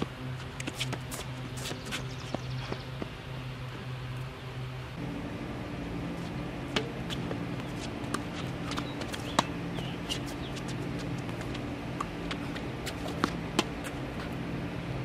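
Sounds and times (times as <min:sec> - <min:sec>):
steady low hum: 0:00.0 - 0:15.0
tennis ball hitting racket: 0:06.4 - 0:14.5.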